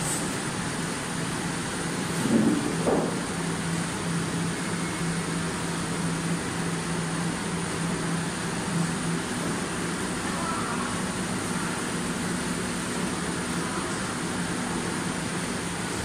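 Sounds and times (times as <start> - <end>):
loud knock: 2.3 - 3.2.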